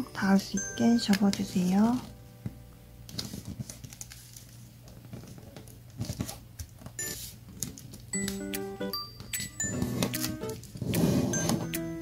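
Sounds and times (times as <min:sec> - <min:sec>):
paper crinkling and rustling: 0:03.1 - 0:08.1.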